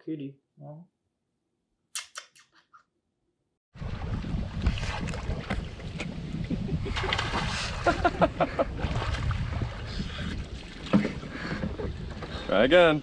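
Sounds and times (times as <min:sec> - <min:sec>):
wind buffeting microphone: 0:03.8 - 0:13.0
water splashing: 0:06.8 - 0:12.2.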